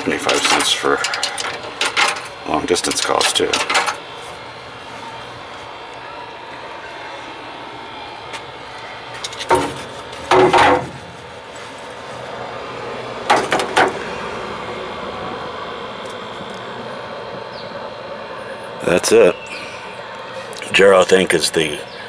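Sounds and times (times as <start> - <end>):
steady background hum: 0.0 - 22.0
payphone clunks and knocks: 9.5 - 11.0.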